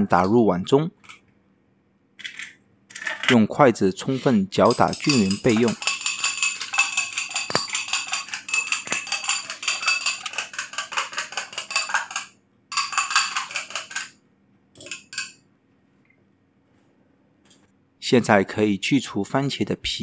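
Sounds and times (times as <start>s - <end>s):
chopsticks clicking against glass bowl: 4.7s - 14.1s.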